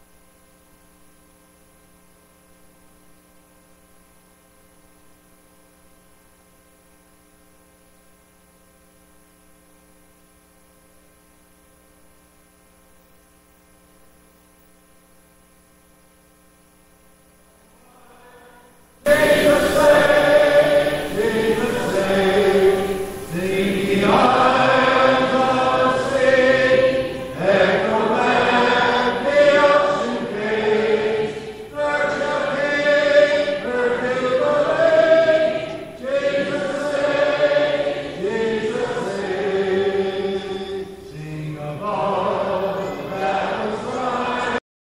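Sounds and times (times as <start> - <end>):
congregation singing a hymn: 17.7 - 44.6.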